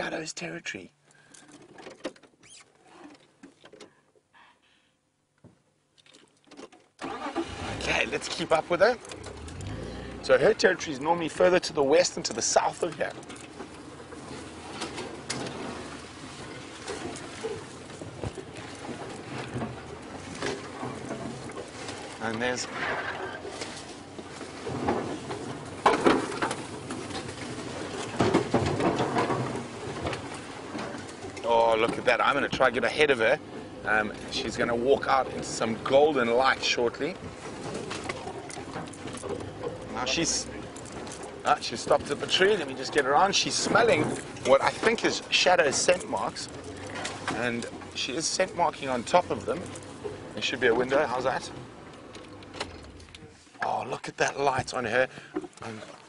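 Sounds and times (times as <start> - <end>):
rustling and small clicks: 5.9 - 7.0.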